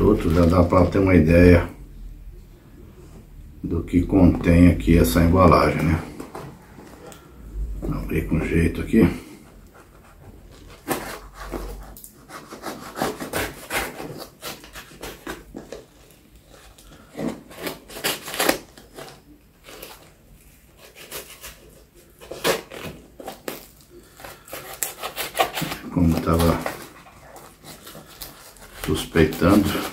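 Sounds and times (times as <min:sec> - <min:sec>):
knife sawing through cardboard: 0:09.8 - 0:15.8, 0:16.5 - 0:20.0, 0:20.7 - 0:29.9.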